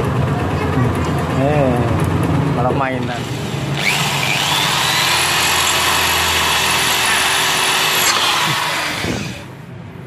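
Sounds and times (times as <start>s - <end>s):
power drill boring metal: 3.2s - 9.5s.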